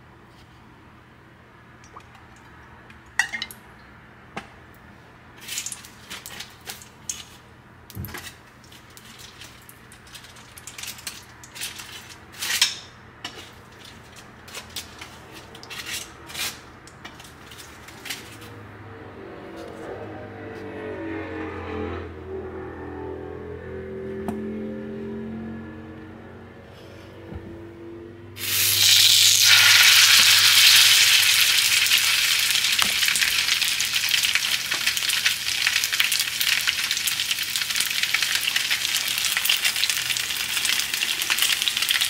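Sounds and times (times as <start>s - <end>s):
utensils clinking on cookware: 3.2s - 3.6s.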